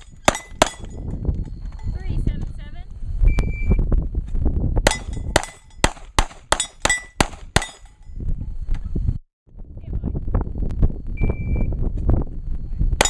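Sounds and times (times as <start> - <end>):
steel plates ringing: 0.0 - 1.0, 4.9 - 5.9, 6.5 - 8.1
rapid pistol shots: 4.9 - 7.8.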